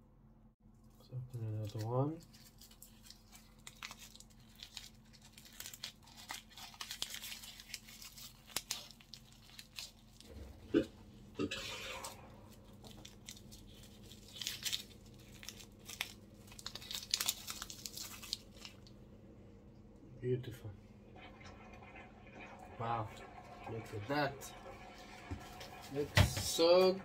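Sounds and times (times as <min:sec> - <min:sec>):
paper cup crinkling and tearing: 0:01.6 - 0:10.4, 0:11.6 - 0:19.0.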